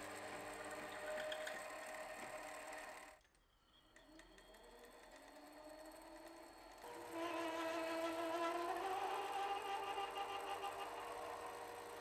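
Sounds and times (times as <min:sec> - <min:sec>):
lathe motor and gear whine: 0:04.1 - 0:12.0.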